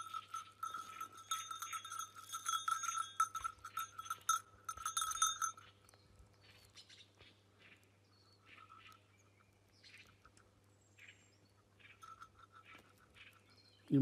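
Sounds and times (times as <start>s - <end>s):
high ringing tone: 0.0s - 5.6s.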